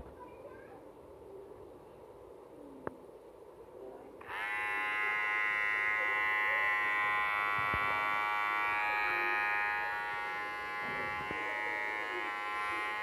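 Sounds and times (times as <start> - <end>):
hair clipper buzzing: 4.2 - 13.0.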